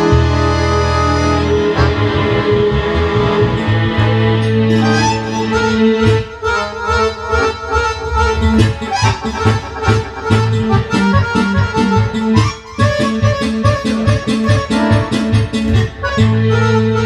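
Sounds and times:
accordions playing folk tune: 0.0s - 17.0s.

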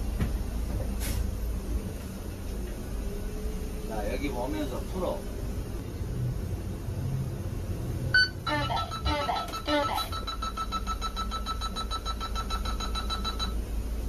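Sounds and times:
recorded announcement: 3.9s - 5.3s
rapidly pulsing alarm tone: 8.1s - 13.7s.

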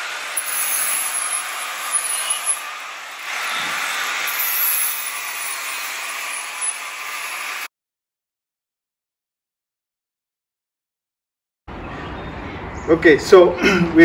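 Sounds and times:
noisy workshop background: 0.0s - 7.7s.

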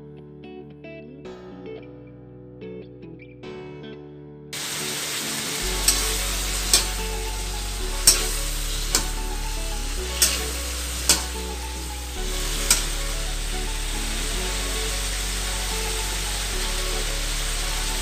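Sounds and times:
background music: 0.0s - 18.0s
vegetables sizzling in a wok: 4.6s - 18.0s.

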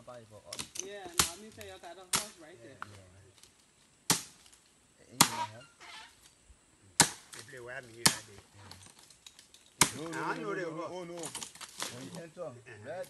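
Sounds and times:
machete chopping wood: 0.5s - 2.4s, 4.1s - 4.6s, 5.2s - 5.6s, 7.0s - 8.4s, 9.8s - 10.3s.

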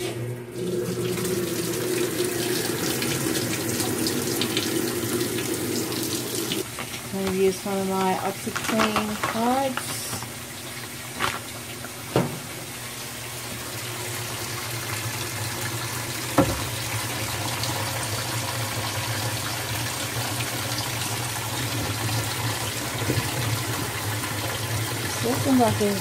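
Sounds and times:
water pouring into washer tub: 0.0s - 26.0s
knock: 16.4s - 16.7s.

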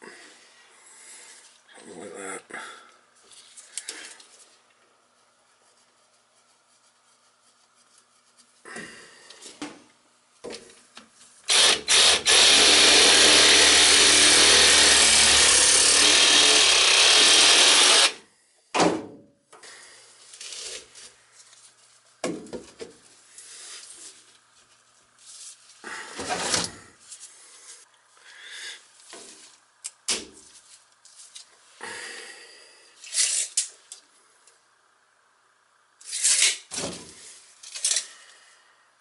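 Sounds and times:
reciprocating saw cutting pipe: 11.5s - 18.2s.

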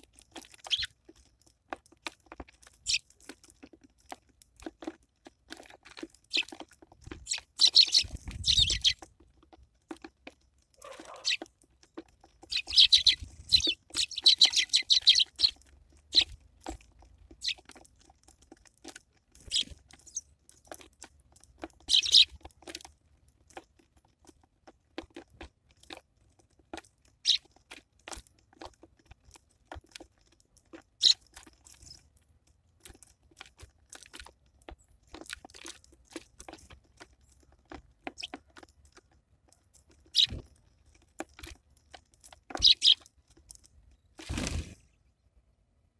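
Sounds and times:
sparrows chirping: 0.0s - 1.0s, 2.6s - 3.2s, 6.2s - 9.1s, 10.8s - 11.5s, 12.2s - 17.9s, 19.3s - 22.7s, 27.2s - 27.6s, 31.0s - 32.0s, 38.0s - 38.4s, 39.8s - 40.5s, 42.5s - 43.1s
birds cracking seeds: 0.0s - 45.0s.

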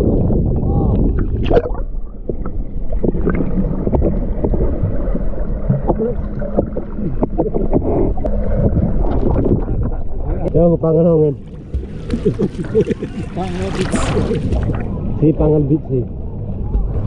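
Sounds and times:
low underwater rumble: 0.0s - 17.0s
sea water sloshing and gurgling: 0.0s - 17.0s
small splashes and knocks: 11.4s - 14.9s.

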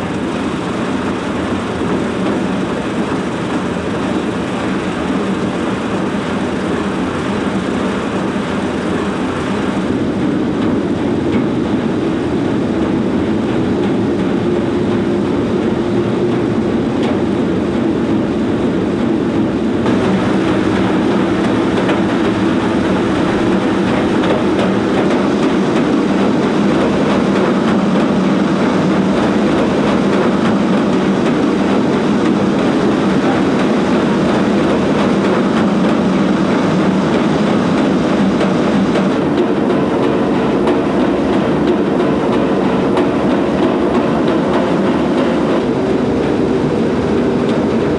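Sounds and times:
treadmill belts clattering: 18.6s - 47.9s.

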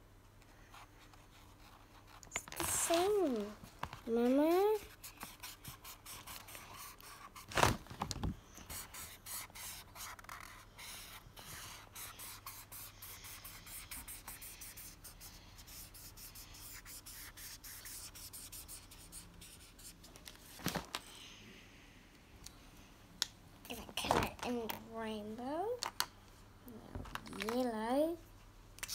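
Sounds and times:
marker rubbing on paper: 1.3s - 3.4s, 4.5s - 7.5s, 8.7s - 20.0s.

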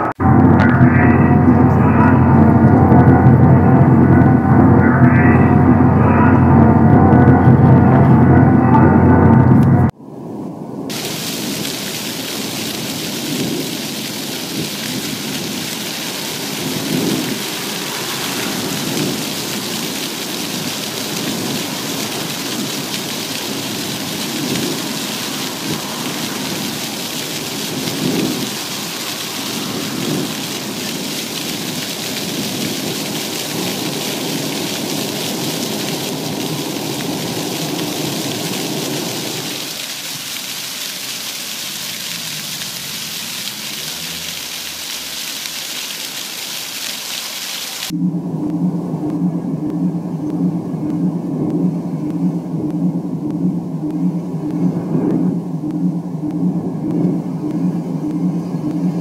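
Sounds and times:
low rumbling swells: 0.0s - 39.7s, 47.9s - 59.0s
fountain water splashing on stone: 10.9s - 48.0s.

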